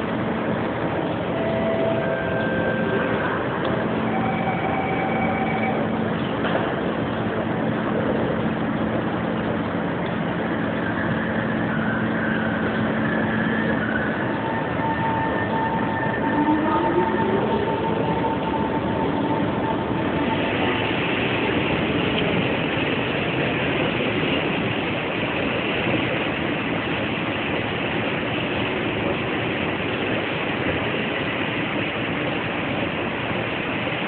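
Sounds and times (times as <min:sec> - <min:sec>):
train rushing noise: 0:00.0 - 0:34.0
train motor whine: 0:00.9 - 0:08.3, 0:08.9 - 0:22.5.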